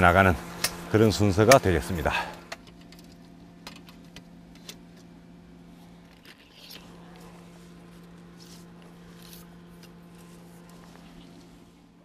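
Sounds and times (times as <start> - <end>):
steady low hum: 0.0 - 12.0
rustles and handling noises: 2.5 - 12.0.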